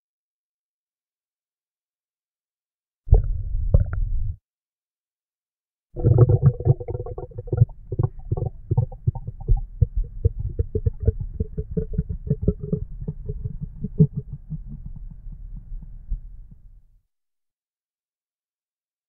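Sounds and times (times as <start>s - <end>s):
stomach growling: 6.0s - 16.8s.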